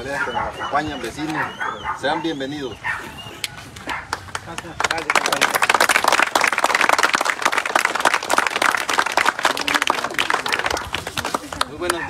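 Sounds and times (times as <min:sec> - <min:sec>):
crowd applauding: 0:04.0 - 0:12.0.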